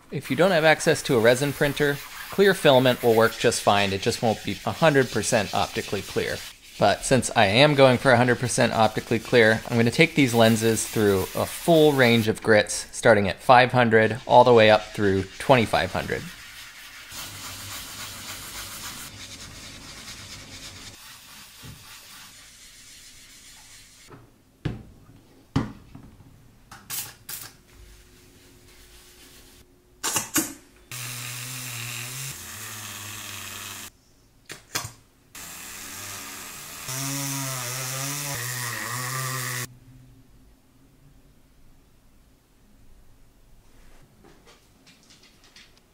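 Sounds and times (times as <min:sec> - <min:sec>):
small electric power tool running: 0:30.9 - 0:33.9, 0:35.4 - 0:39.7.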